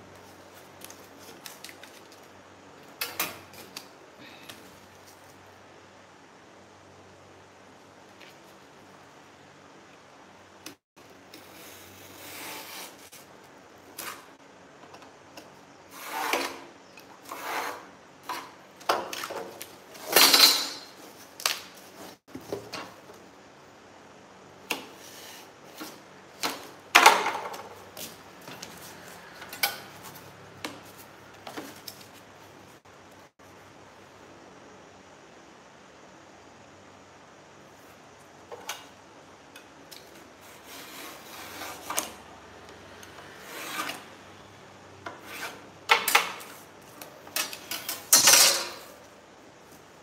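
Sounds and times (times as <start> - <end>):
cardboard sheets scraping: 11.4 - 14.4.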